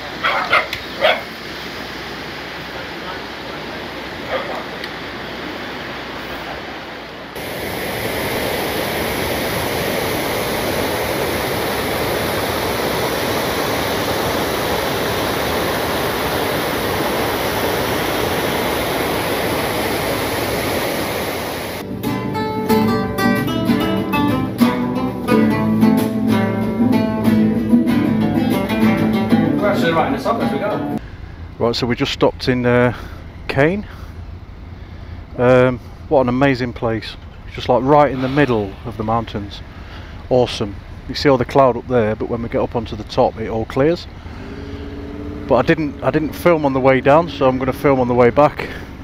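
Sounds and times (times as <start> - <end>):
stream rushing over rocks: 0.0 - 21.8
acoustic guitars plucked and strummed: 21.8 - 31.0.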